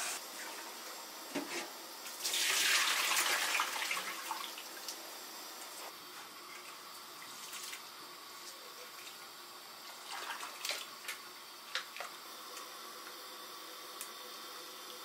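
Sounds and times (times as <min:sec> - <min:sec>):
water splashing into a pot: 0:02.2 - 0:05.0.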